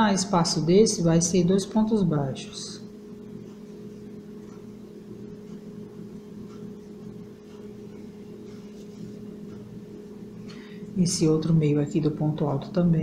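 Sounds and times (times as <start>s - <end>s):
steady low hum: 0.0s - 13.0s
faint soft rustles: 7.8s - 9.4s.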